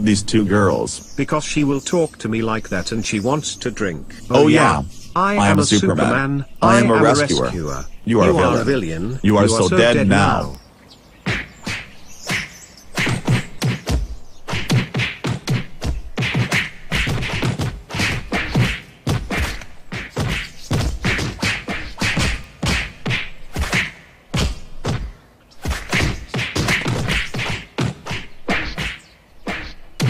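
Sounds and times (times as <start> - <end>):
cartoon punching whacks and thuds: 11.3 - 30.0.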